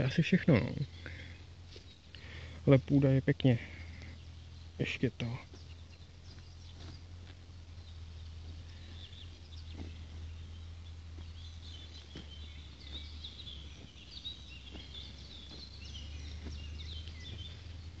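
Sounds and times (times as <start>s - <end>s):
small birds chirping: 0.0s - 18.0s
steady low rumble: 0.0s - 18.0s
soft footfalls: 5.3s - 18.0s.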